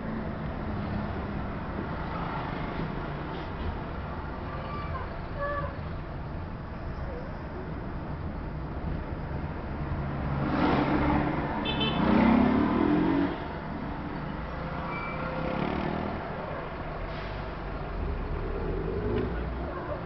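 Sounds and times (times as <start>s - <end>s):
engine revving: 10.2s - 11.4s, 12.0s - 13.4s.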